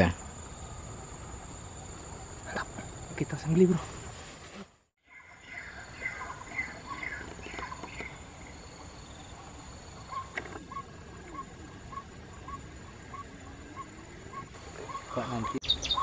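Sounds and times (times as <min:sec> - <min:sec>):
birds chirping: 0:05.0 - 0:16.0.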